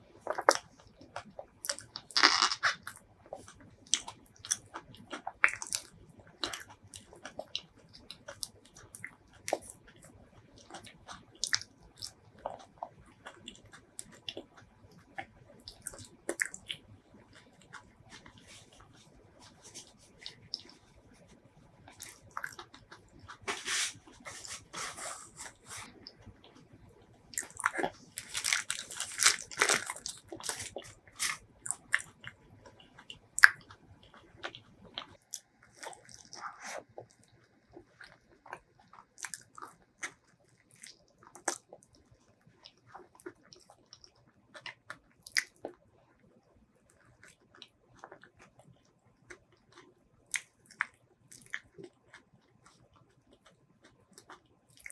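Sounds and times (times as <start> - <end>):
wet chewing: 0.2 - 21.3, 21.9 - 26.6, 27.3 - 45.9, 46.9 - 54.9.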